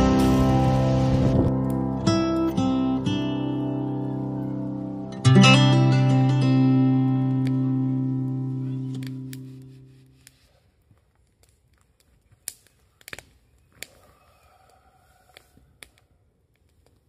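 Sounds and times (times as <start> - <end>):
campfire crackling and popping: 0.0 - 4.1, 5.1 - 17.0
acoustic guitar music: 0.0 - 10.2.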